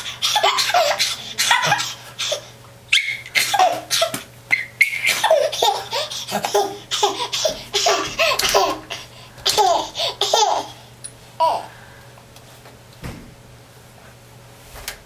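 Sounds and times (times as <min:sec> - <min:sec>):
baby laughing: 0:00.0 - 0:10.8, 0:11.4 - 0:11.7.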